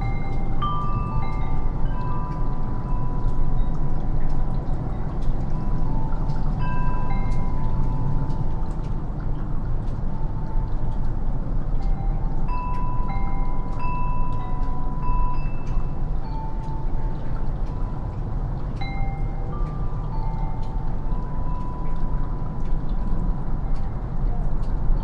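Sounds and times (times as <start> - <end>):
wind chimes ringing: 0.0 - 9.1, 11.8 - 25.0
drips of melting snow: 0.0 - 25.0
steady low rumble: 0.0 - 25.0.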